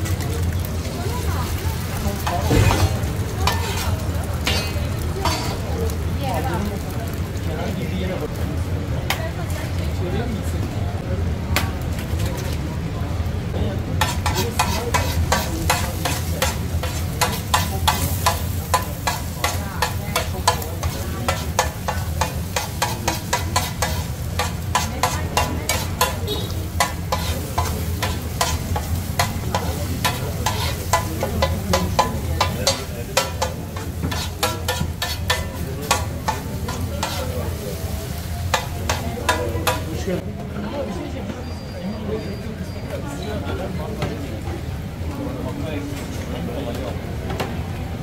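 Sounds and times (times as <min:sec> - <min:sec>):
food sizzling: 0:00.0 - 0:40.2
metal spatula clattering on griddle: 0:02.2 - 0:05.7, 0:14.0 - 0:40.0.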